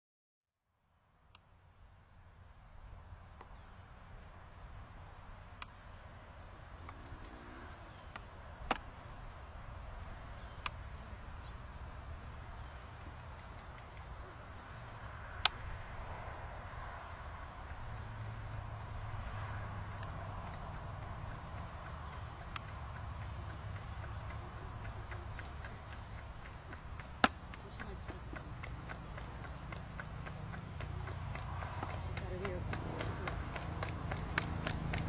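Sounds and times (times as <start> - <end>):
high insect drone: 1.6 - 35.0
pony cart on paved lane: 6.4 - 35.0
sharp clicks: 21.8 - 30.1.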